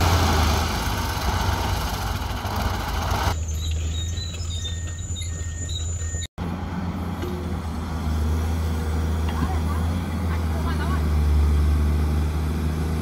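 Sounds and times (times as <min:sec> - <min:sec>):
diesel truck engine drone: 0:00.0 - 0:13.0
faint high squeaks and whistles: 0:03.4 - 0:06.3.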